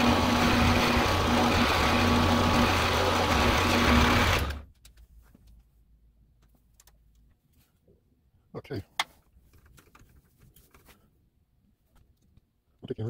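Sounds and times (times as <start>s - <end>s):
drill press humming and whining: 0.0s - 4.6s.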